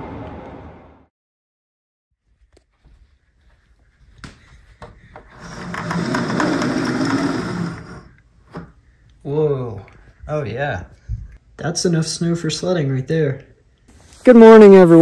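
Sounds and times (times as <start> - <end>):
window blind slats clattering: 5.2 - 8.1.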